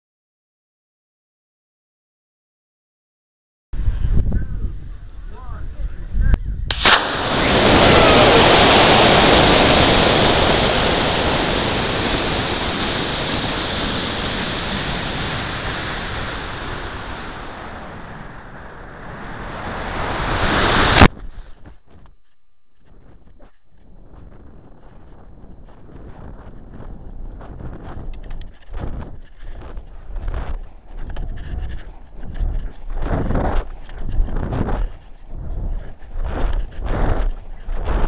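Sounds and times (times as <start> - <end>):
faint wind: 3.8 - 38.0
ejection charge pop: 6.7 - 14.2, 19.9 - 21.2
rocket motor ignition crack: 6.7 - 21.2
rocket motor thrust rushing: 6.7 - 21.5.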